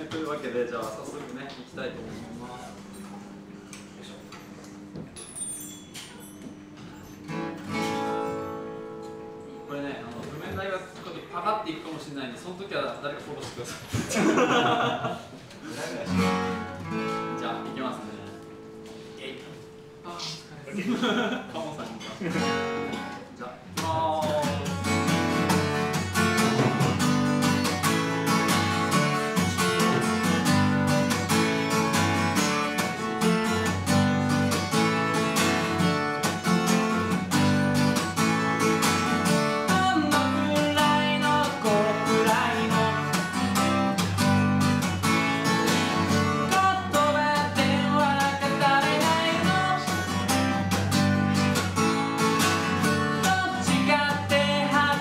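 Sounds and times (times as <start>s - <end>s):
acoustic guitar strumming: 2.2s - 11.3s, 15.8s - 21.3s, 22.0s - 55.0s
person singing: 39.6s - 43.3s, 46.4s - 50.8s, 53.2s - 55.0s.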